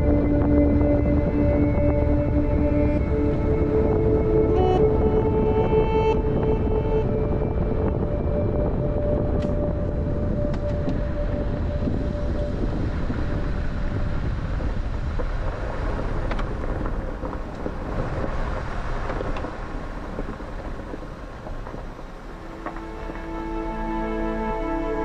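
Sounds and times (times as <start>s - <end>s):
vehicle driving on rough road: 7.2s - 23.4s.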